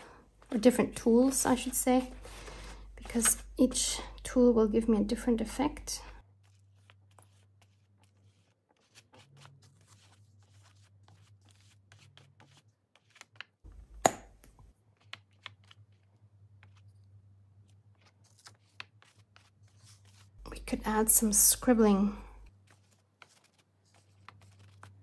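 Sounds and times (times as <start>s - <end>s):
brush scratching across paper: 6.2s - 13.4s, 18.2s - 20.4s.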